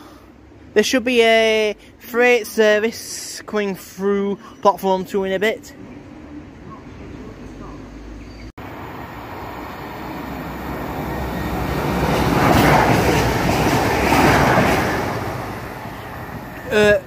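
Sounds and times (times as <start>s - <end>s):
diesel trains passing: 0.0s - 0.8s, 5.6s - 17.0s.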